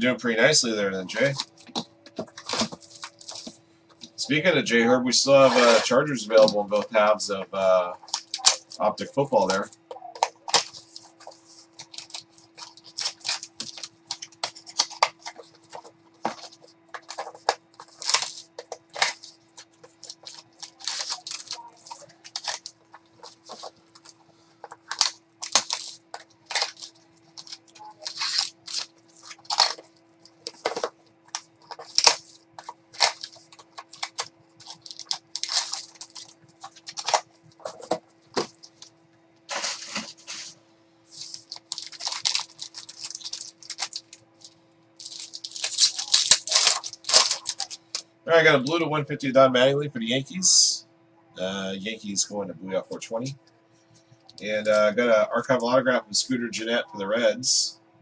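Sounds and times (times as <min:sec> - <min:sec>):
faint steady hum: 0:00.0 - 0:58.0
wrapper crinkling and tearing: 0:01.2 - 0:03.6, 0:05.4 - 0:06.6, 0:08.0 - 0:38.9, 0:39.5 - 0:48.1.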